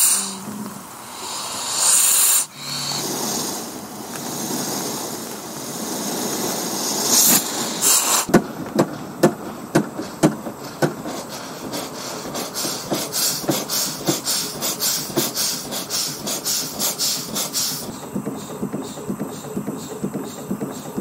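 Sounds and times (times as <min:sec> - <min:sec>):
loud steam hissing: 0:00.0 - 0:21.0
steam engine rhythmic beat: 0:00.0 - 0:21.0.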